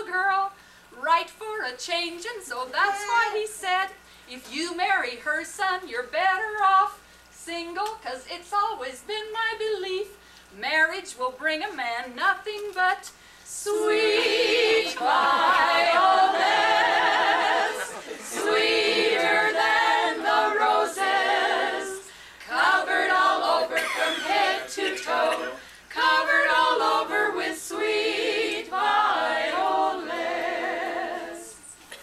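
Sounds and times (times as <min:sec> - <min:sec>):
group singing a cappella: 0:13.5 - 0:31.9.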